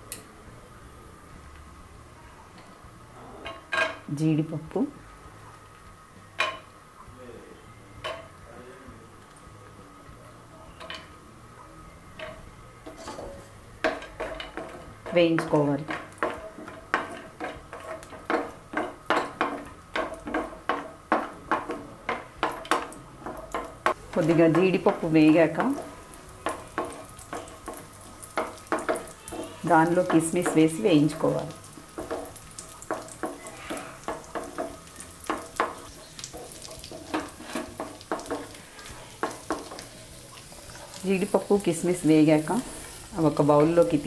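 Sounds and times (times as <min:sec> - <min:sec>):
wooden spatula scraping frying pan: 0:12.9 - 0:41.4.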